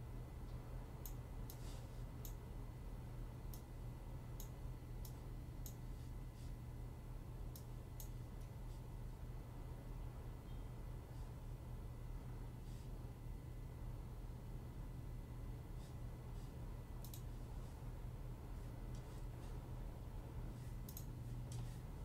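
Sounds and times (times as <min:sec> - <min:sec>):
steady low hum: 0:00.0 - 0:22.0
computer mouse clicking: 0:04.4 - 0:05.8, 0:07.5 - 0:08.5, 0:17.0 - 0:17.3, 0:20.8 - 0:21.7.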